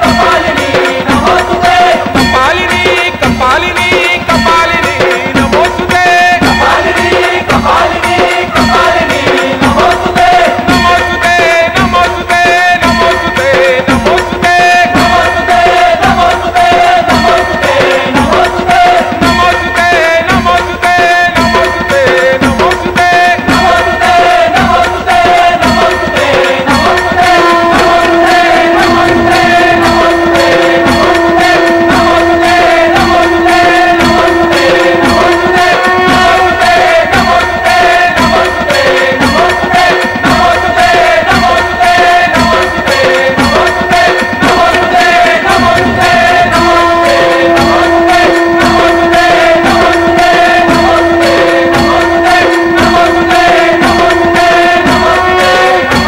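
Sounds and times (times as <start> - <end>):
fast hand-drum beat: 0.0 - 56.0
long sustained tone: 27.2 - 36.6, 44.7 - 55.8.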